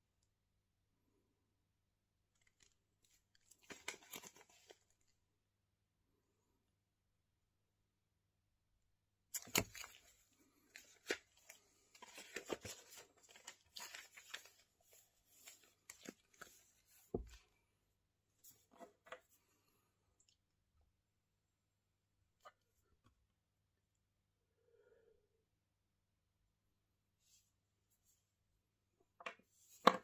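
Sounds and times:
notebook pages rustling: 2.4 - 5.0, 9.4 - 17.4.

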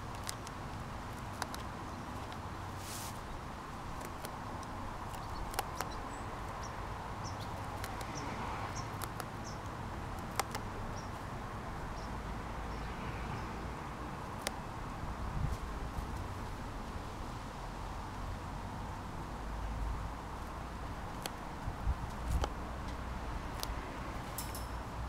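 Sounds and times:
rabbit chewing stems: 0.0 - 11.3, 14.3 - 14.6, 20.4 - 24.7
outdoor background: 0.0 - 25.0.

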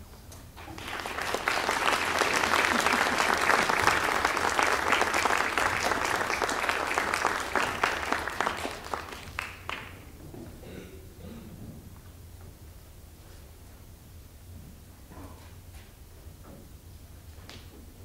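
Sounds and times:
audience applauding: 0.6 - 10.1.

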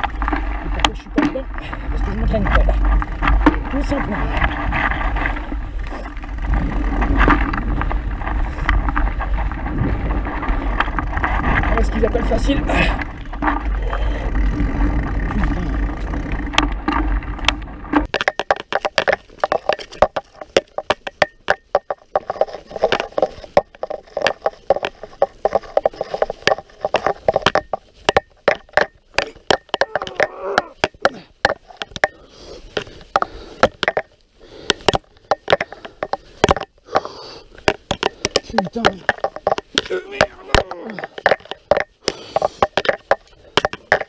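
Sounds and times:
low rumble: 0.0 - 18.1
mountain bike rattling: 0.0 - 44.0.

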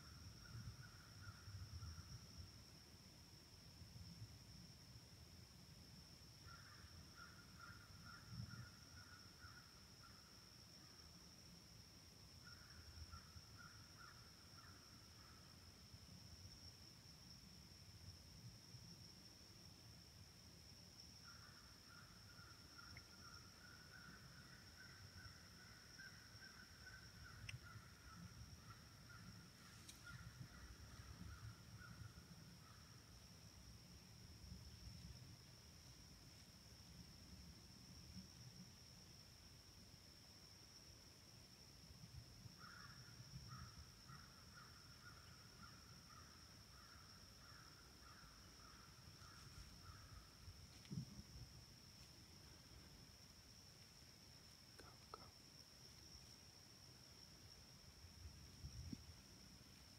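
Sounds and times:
faint bird calls: 21.2 - 33.0, 42.6 - 50.9
faint clicks: 27.4 - 27.7.

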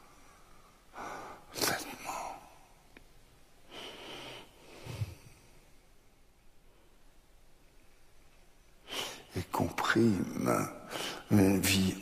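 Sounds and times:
man breathing heavily: 3.7 - 5.4.

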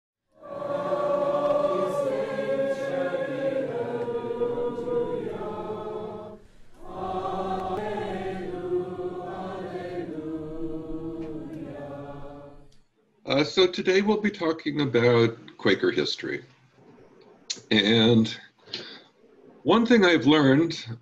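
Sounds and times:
choir singing long chords: 0.3 - 12.9.

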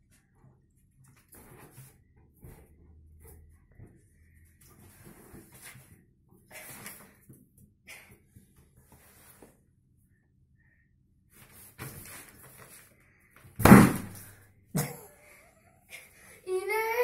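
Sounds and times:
balloon bursting: 13.6 - 14.3.

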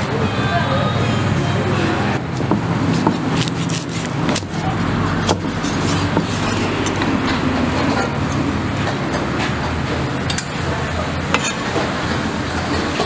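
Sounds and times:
cleaver chopping on wooden board: 5.2 - 6.4.

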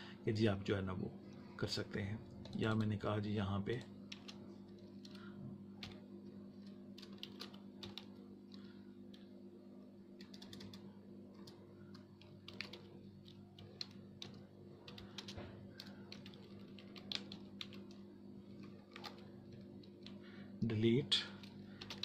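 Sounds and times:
steady low hum: 0.0 - 22.0
typing on computer keyboard: 3.7 - 6.0, 6.6 - 9.3, 10.2 - 20.2, 21.4 - 22.0.

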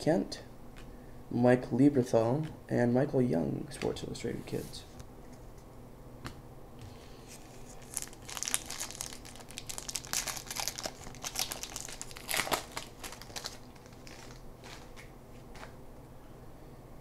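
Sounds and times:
wrapper crinkling and tearing: 7.4 - 15.1.

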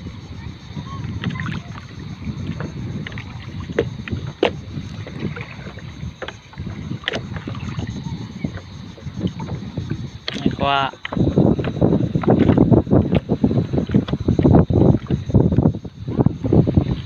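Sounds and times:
water sloshing and splashing: 0.0 - 17.0
wind rumbling on the microphone: 0.0 - 17.0
short sharp splashes: 10.2 - 11.8.

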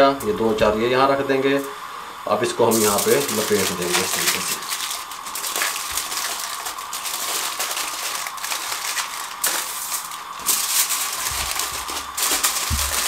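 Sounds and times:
aluminium foil crinkling: 2.7 - 13.0.

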